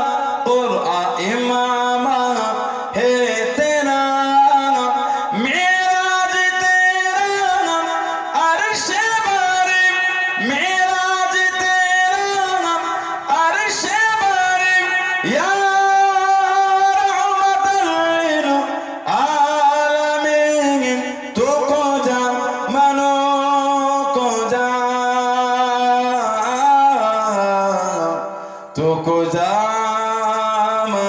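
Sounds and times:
man singing into a microphone: 0:00.0 - 0:31.0
singer breathing: 0:02.6 - 0:03.0, 0:05.0 - 0:05.4, 0:18.7 - 0:19.1, 0:28.2 - 0:28.8.

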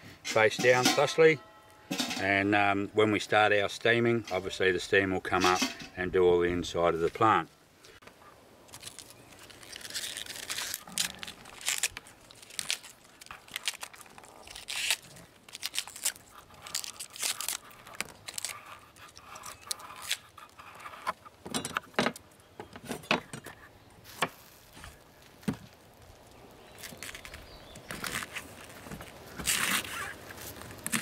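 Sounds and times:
leaves snapping and tearing: 0:08.6 - 0:20.6, 0:24.1 - 0:31.0.

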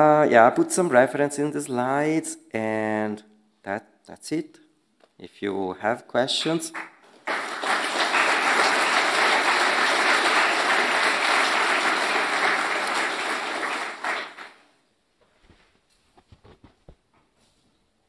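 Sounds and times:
audience applauding: 0:06.4 - 0:14.7
faint rustles and clicks: 0:15.2 - 0:17.9.

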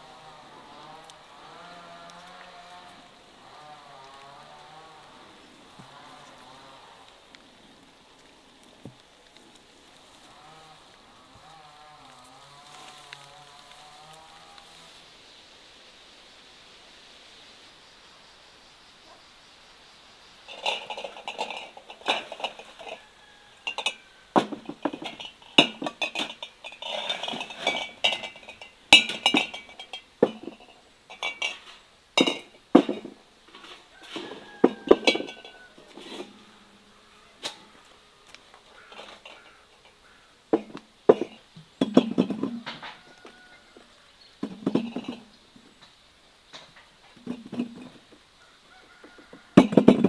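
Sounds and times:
glass jars clinking together: 0:20.5 - 0:33.2, 0:34.2 - 0:36.3, 0:40.6 - 0:42.9, 0:44.4 - 0:45.3, 0:47.2 - 0:48.0, 0:49.6 - 0:50.0.

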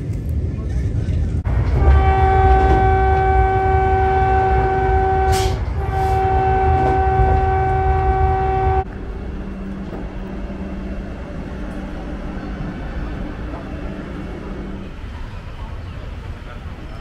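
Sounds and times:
train rumble: 0:00.0 - 0:17.0
train horn blasts: 0:01.7 - 0:08.9.

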